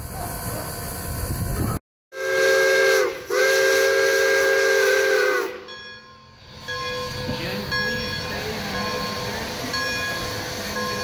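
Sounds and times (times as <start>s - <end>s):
steam locomotive whistle blasts: 2.1s - 5.8s.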